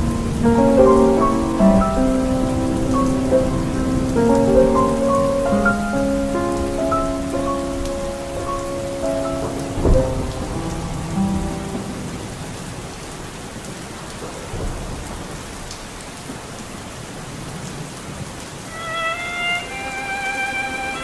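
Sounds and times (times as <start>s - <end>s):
held music notes: 0.0s - 12.1s, 18.7s - 21.0s
sharp thunderclap: 0.0s - 12.4s, 14.3s - 15.6s
low thunder rumble: 0.0s - 12.8s
heavy rain: 0.0s - 21.0s.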